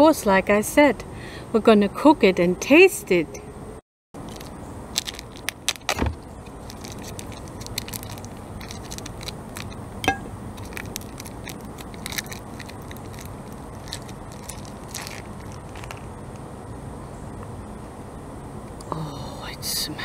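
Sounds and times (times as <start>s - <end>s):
plastic wrapping crackling: 4.2s - 9.8s, 10.5s - 16.2s.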